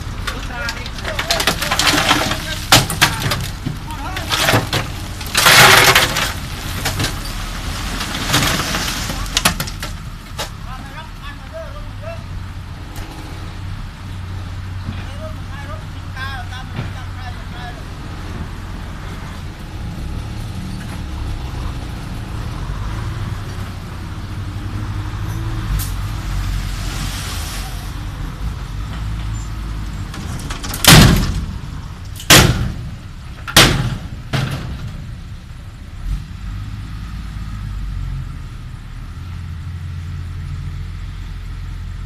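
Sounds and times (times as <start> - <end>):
tailgate slamming: 30.1 - 31.6, 32.2 - 35.2.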